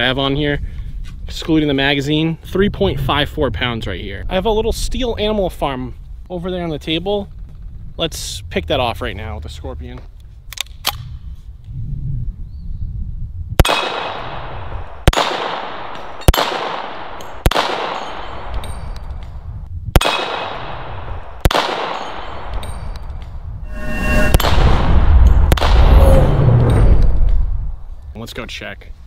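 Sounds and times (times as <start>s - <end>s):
gunshots: 13.6s - 18.5s, 20.0s - 22.4s, 24.3s - 26.4s
low rumble: 22.8s - 28.2s
steel target clanging: 24.0s - 27.1s.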